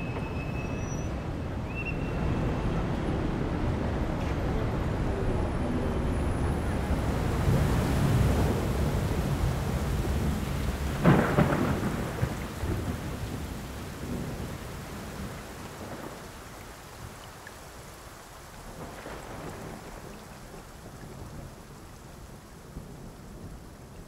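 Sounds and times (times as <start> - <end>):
rain: 0.0 - 24.0
rumbling thunder: 6.9 - 16.4
thunder crash: 7.3 - 14.6.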